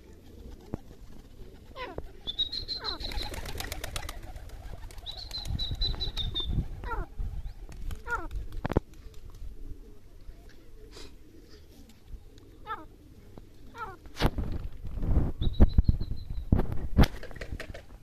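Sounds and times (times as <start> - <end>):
birds whistling calls: 1.8 - 3.6, 4.9 - 8.2, 15.4 - 16.5.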